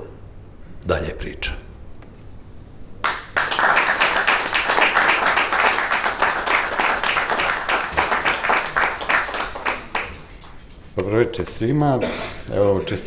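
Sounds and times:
audience applauding: 3.0 - 10.8.

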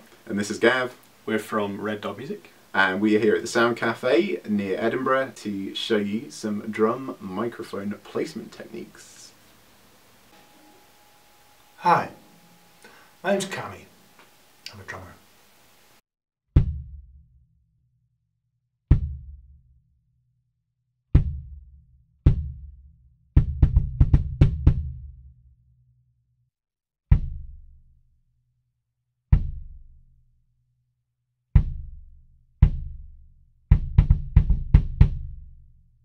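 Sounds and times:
kick drum thuds: 21.2 - 21.6, 22.3 - 22.6, 23.4 - 24.9, 27.1 - 27.6, 29.4 - 29.8, 31.6 - 35.4.

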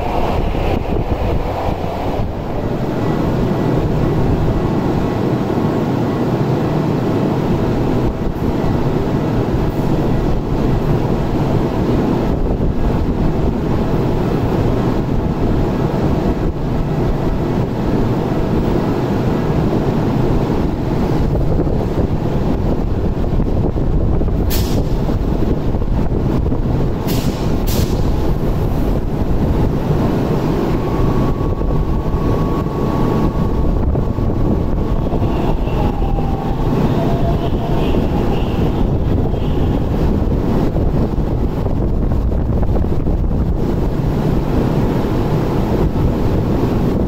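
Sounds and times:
tram equipment humming: 0.0 - 47.0.

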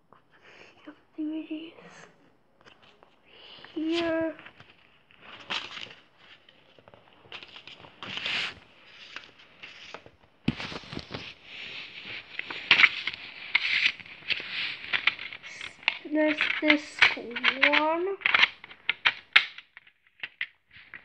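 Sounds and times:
plastic case rustling and scraping: 2.6 - 21.0
plastic case clicks and rattles: 13.8 - 21.0.

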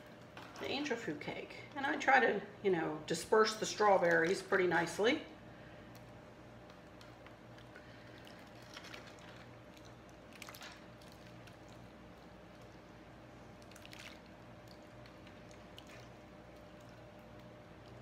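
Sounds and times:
low steady hum: 0.0 - 18.0
gelatin splats: 13.6 - 18.0
wet squishing and plopping: 13.6 - 18.0.

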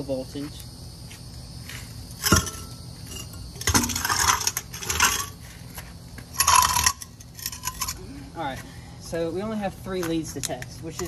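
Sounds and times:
metal clinking and rattling: 2.2 - 5.4, 6.4 - 8.0.

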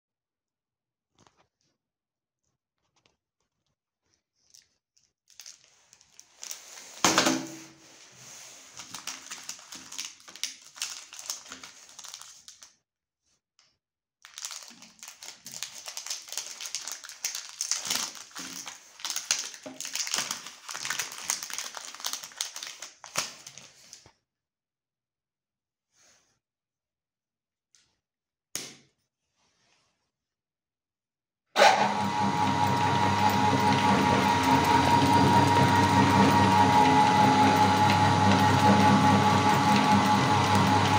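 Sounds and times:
wrappers crinkling: 4.4 - 12.8, 14.2 - 24.0.

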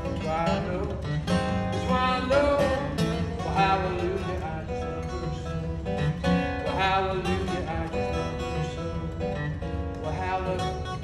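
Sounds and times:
acoustic guitar strummed and picked: 0.0 - 11.0.

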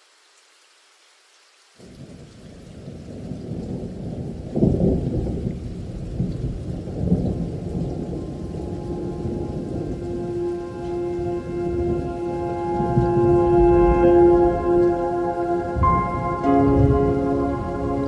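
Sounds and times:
thunder rumbling: 2.8 - 18.0
held musical note: 8.2 - 18.0.

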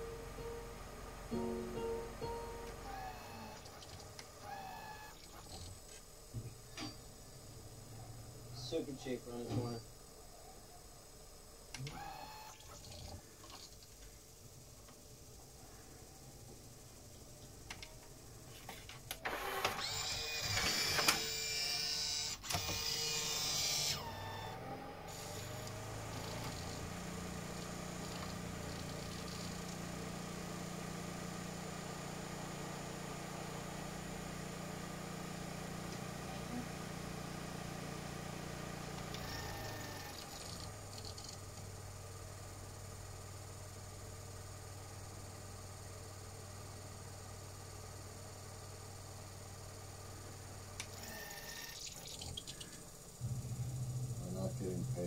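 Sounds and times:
low motor hum: 0.0 - 10.0, 19.8 - 43.5, 48.6 - 55.0
disc player mechanism whirring: 0.0 - 10.1, 11.0 - 15.3, 17.4 - 42.9, 48.9 - 55.0.

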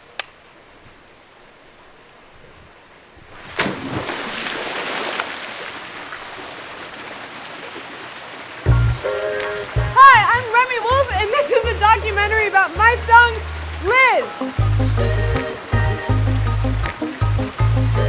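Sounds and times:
small waterfall trickling: 0.0 - 18.0
person splashing into pool: 3.3 - 8.7.

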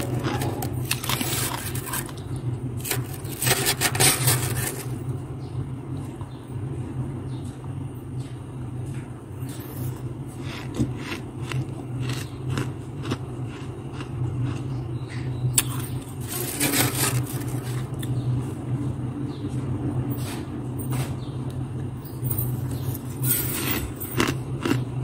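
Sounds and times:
metal spoon scraping frost: 0.0 - 2.2, 2.8 - 5.0, 15.6 - 17.9
frost crunching: 0.0 - 5.2, 15.6 - 18.2
steady low hum: 0.0 - 25.0.

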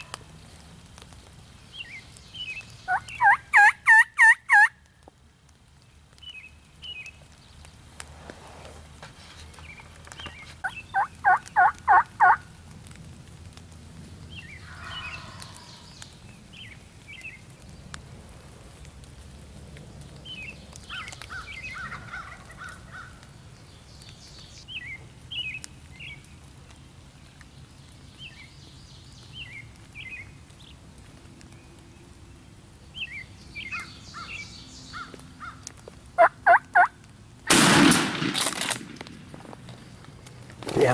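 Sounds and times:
wild turkeys calling: 2.8 - 4.8, 10.1 - 12.5, 14.4 - 15.9, 20.8 - 23.3, 33.0 - 37.9.

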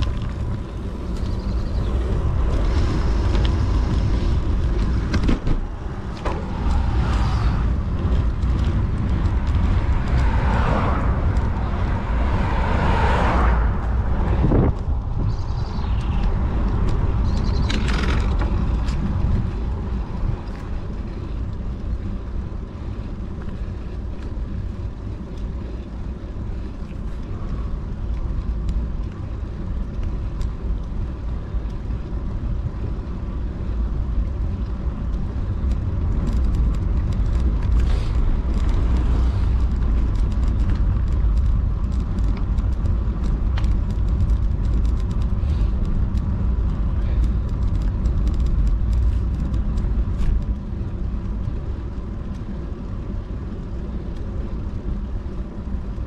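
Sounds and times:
bicycle road noise: 0.0 - 56.0
wind buffeting microphone: 0.0 - 56.0.

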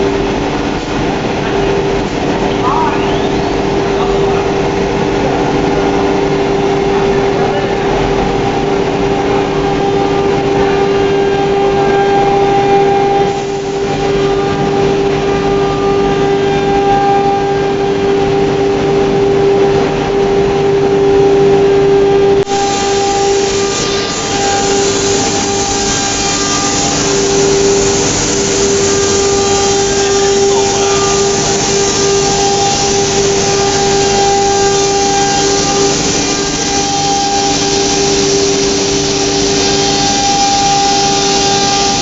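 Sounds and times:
router spindle whine: 1.4 - 42.0
loud hiss: 7.3 - 15.9, 22.5 - 42.0.

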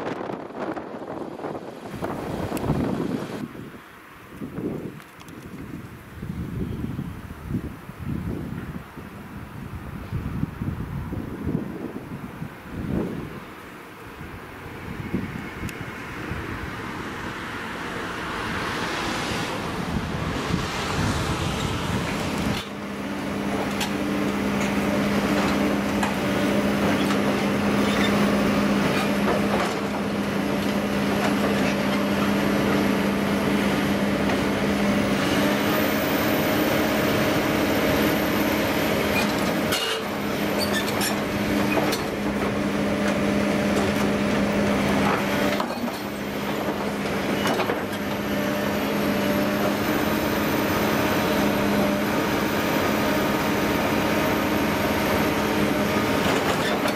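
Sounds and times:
heavy machine engine running: 15.9 - 56.9.

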